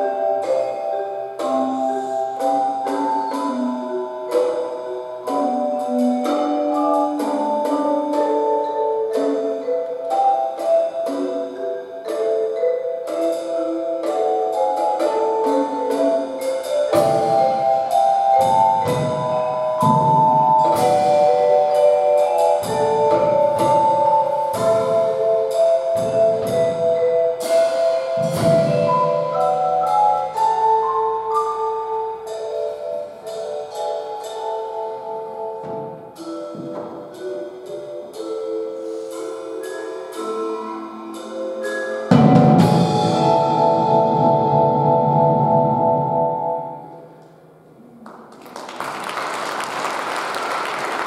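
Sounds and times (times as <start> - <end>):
ringing mallet notes: 0.0 - 47.2
keyboard melody: 0.0 - 47.9
drum kit: 13.0 - 31.6, 42.1 - 45.8.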